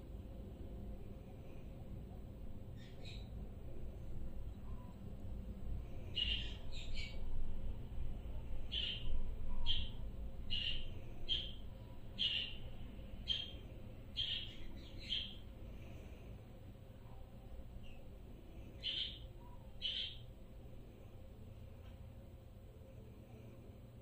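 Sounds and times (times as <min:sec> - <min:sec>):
budgerigar chirping: 0:09.6 - 0:11.6, 0:12.2 - 0:12.6, 0:13.2 - 0:13.5, 0:14.2 - 0:15.4, 0:19.8 - 0:20.2.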